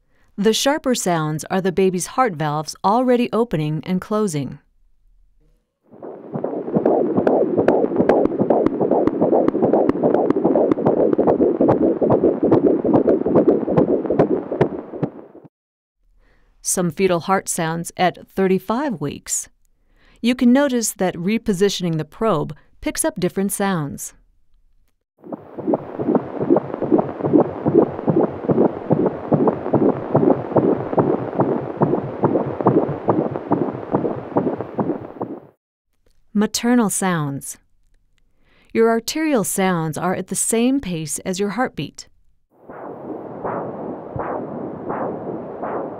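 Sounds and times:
whooshing fetal heartbeat: 5.9s - 15.5s, 25.2s - 35.6s, 42.6s - 45.9s
heart valve clicks: 6.3s - 15.2s, 25.3s - 35.5s.

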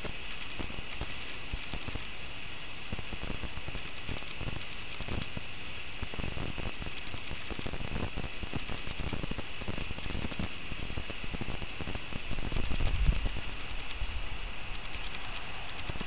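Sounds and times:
steady hiss: 0.0s - 16.0s
rustling: 12.2s - 16.0s.

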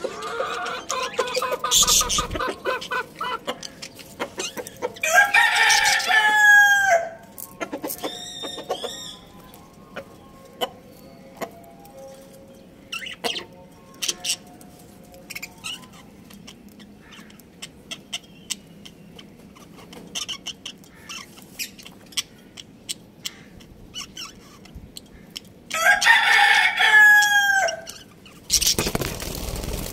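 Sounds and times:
budgerigars chirping: 0.4s - 5.0s
rooster crowing: 5.0s - 7.2s, 25.7s - 27.9s.

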